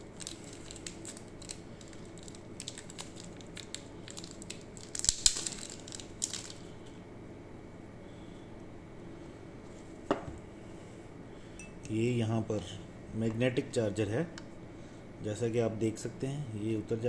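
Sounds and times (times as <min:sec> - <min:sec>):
plastic crinkling: 0:00.0 - 0:06.9.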